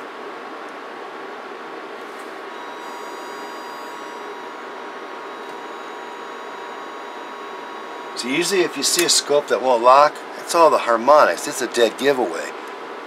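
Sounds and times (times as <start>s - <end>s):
electronic hiss and whine: 1.1s - 13.0s
steady thin tone: 2.5s - 10.8s.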